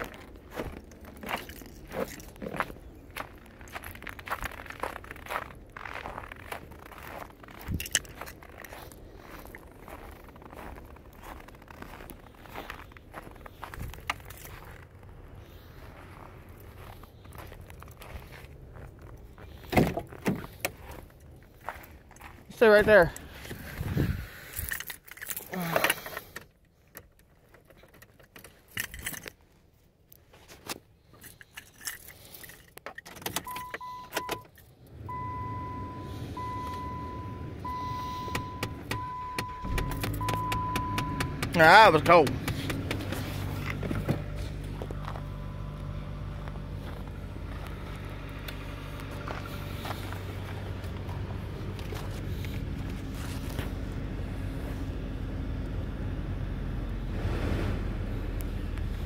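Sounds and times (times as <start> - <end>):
car engine cranking slowly: 0.0 - 29.4, 30.9 - 59.0
keys jangling and clicking: 7.5 - 8.8, 24.5 - 25.6, 26.9 - 29.4, 31.1 - 33.7
dashboard chime beeps: 33.5 - 34.5, 35.1 - 41.8
long dashboard chime: 33.5 - 42.4, 44.9 - 46.7.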